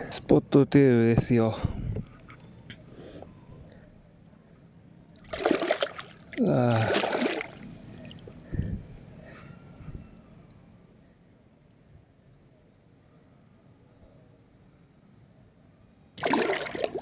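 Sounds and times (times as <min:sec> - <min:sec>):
fish splashing in shallow water: 0:05.2 - 0:08.4, 0:16.2 - 0:17.0.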